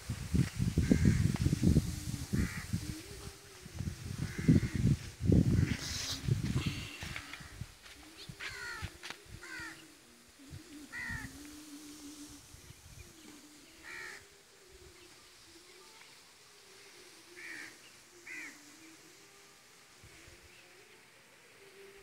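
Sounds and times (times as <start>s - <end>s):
crows cawing in the distance: 0.8s - 1.4s, 2.4s - 2.8s, 4.2s - 6.0s, 6.6s - 7.8s, 8.4s - 10.0s, 10.9s - 11.4s, 13.8s - 14.4s, 16.8s - 19.0s.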